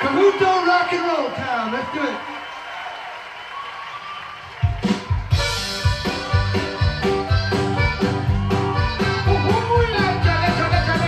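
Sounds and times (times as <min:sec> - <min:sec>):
steady drum beat: 0:04.6 - 0:11.0
electric guitar: 0:04.8 - 0:11.0
button accordion: 0:05.1 - 0:11.0.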